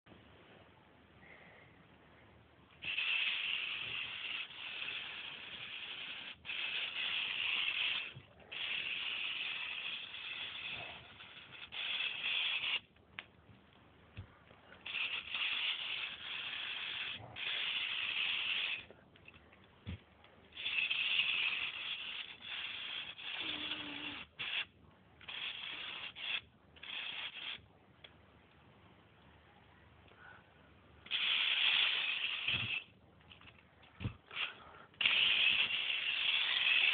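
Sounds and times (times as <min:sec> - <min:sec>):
small electric motor and gears whirring: 0:02.8 - 0:12.9, 0:14.8 - 0:19.4, 0:20.5 - 0:27.7, 0:31.0 - 0:36.9.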